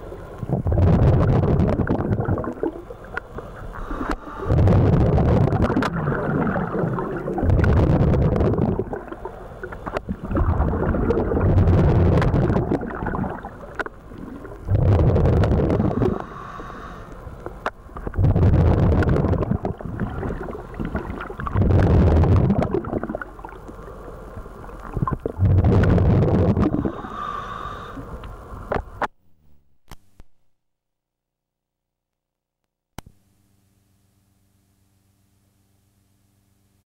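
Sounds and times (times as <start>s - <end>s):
diver exhaling bubbles: 0.0s - 16.6s, 18.0s - 23.7s, 24.7s - 28.0s
regulator hiss: 6.0s - 25.3s, 26.6s - 29.0s.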